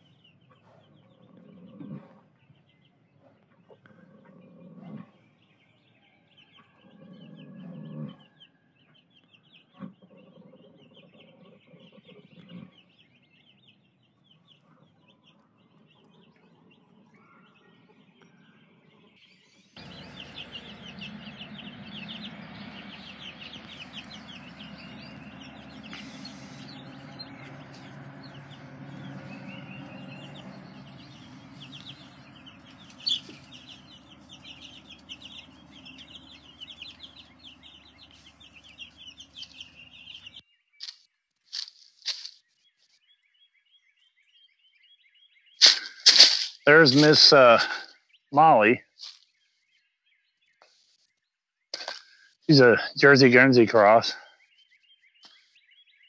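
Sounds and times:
birds chirping: 0.0 - 56.0
horse snoring faintly: 1.2 - 2.3, 3.7 - 5.2, 6.8 - 8.3
low rumble: 19.8 - 40.4.

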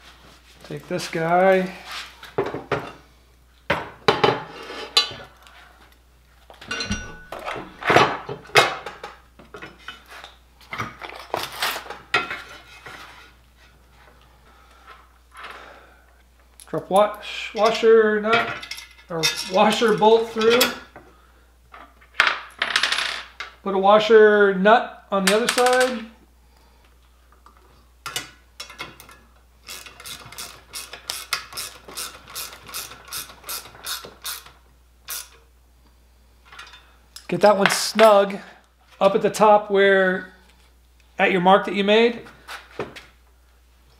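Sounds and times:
sharp metal clanks: 6.7 - 7.5
hand ratchet clicking: 29.7 - 35.4.

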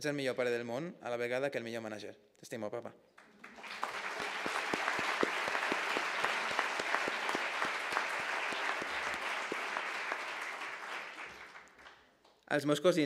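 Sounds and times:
audience applauding: 3.2 - 12.1.

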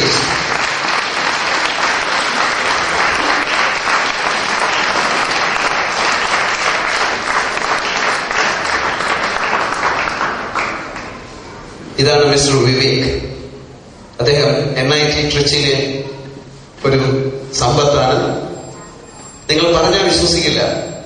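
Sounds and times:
crowd applause: 0.0 - 11.4.

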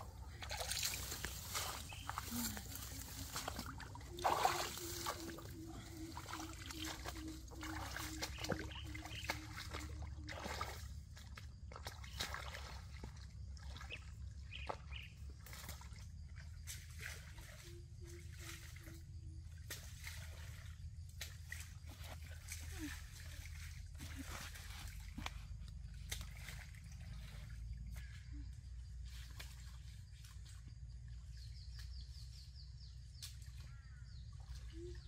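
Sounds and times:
trickling water: 0.0 - 28.0
low repeated animal call: 1.9 - 11.0.

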